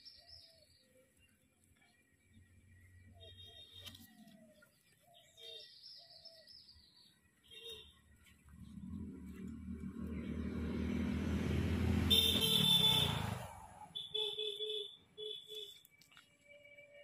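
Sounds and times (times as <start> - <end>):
vehicle passing by: 8.3 - 14.1
horn-like tone: 12.0 - 15.8.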